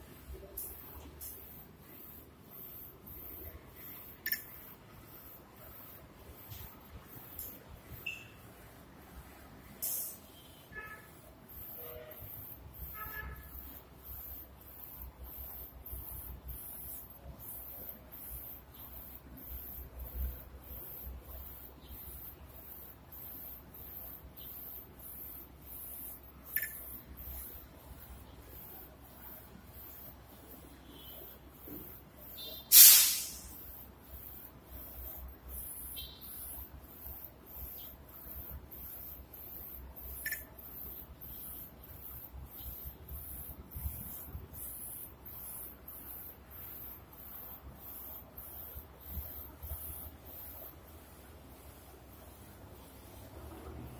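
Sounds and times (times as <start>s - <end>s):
sharp click: 4.2s - 4.6s, 26.5s - 26.9s, 40.2s - 40.5s
high hiss: 9.8s - 10.4s, 32.4s - 50.7s
high-pitched hiss: 9.8s - 10.6s, 11.8s - 50.8s.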